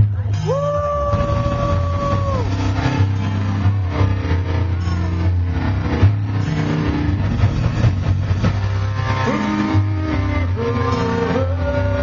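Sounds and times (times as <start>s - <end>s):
bending guitar notes: 0.0s - 12.0s
heavy metal band playing: 0.0s - 12.0s.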